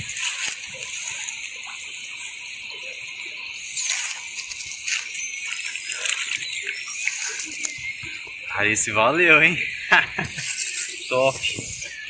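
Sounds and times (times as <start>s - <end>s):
grass rustling: 0.0s - 12.0s
steady high hiss: 0.0s - 12.0s
shallow water splashing: 3.6s - 8.6s.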